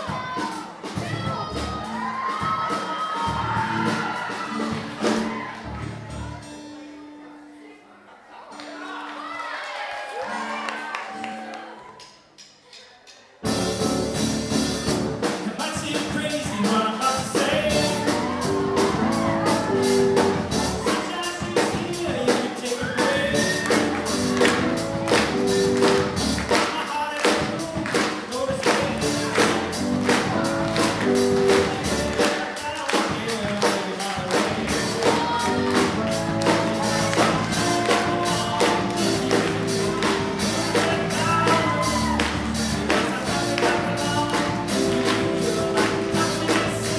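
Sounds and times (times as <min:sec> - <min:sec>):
drum kit beat: 0:00.0 - 0:05.8, 0:13.4 - 0:46.9
keyboard: 0:13.4 - 0:46.9.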